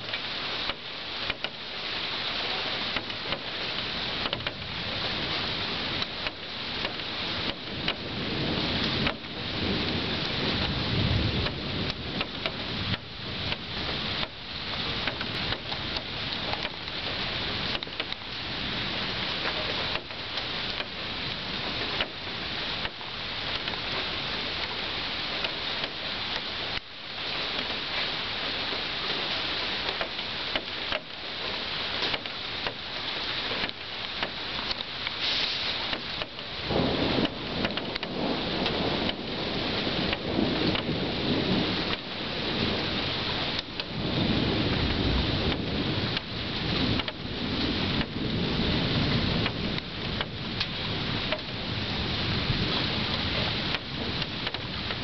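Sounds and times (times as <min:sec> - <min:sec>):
heavy rain falling: 0:00.0 - 0:55.0
low thunder rumble: 0:03.0 - 0:26.8, 0:35.0 - 0:55.0.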